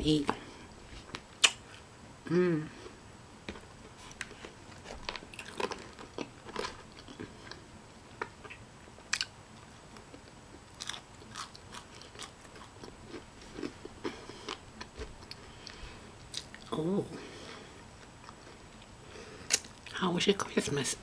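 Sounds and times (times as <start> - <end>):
person chewing food: 3.5 - 16.7, 17.4 - 19.9.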